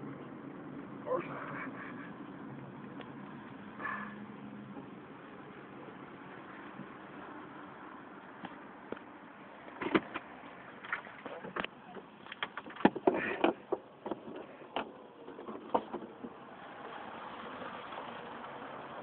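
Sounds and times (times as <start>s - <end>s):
sharp clicks and knocks: 9.7s - 16.4s.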